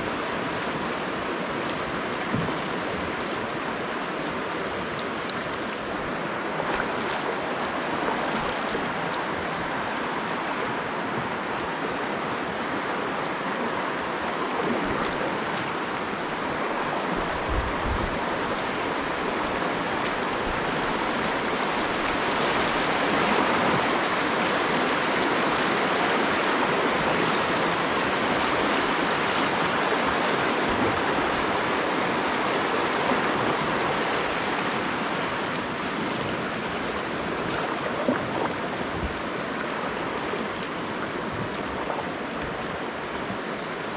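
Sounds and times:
river rapids rushing: 0.0 - 43.9.

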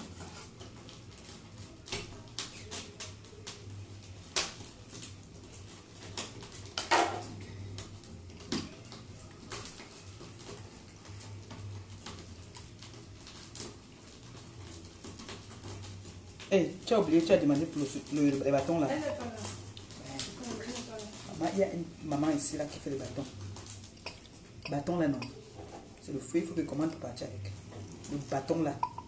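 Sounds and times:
low steady hum: 18.9 - 29.0
kitchen items clicking and tapping: 21.6 - 27.1, 27.8 - 29.0.

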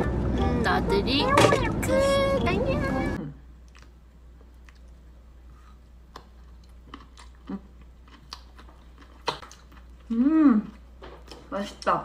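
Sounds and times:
low steady hum: 0.0 - 12.0
person chewing noodles: 3.6 - 11.0
mouth clicks and smacks: 8.1 - 9.7.

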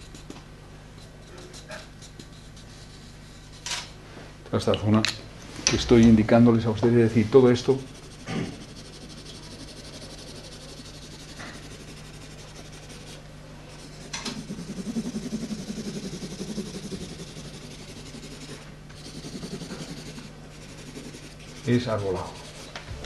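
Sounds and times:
steady low hum: 0.0 - 23.0
pen scratching on paper: 1.2 - 3.7, 7.7 - 22.8.

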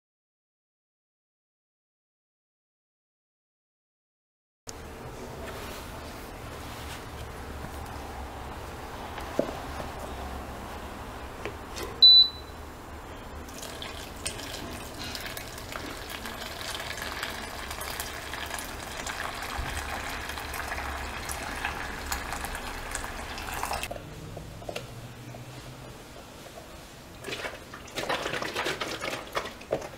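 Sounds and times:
short high beep: 12.0 - 12.5
hot water pouring from kettle: 13.5 - 23.9.

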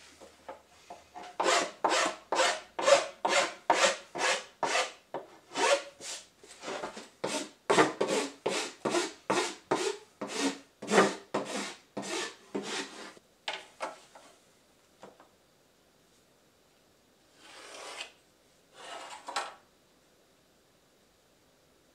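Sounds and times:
hand file rasping on board: 1.3 - 6.2, 7.2 - 13.2.

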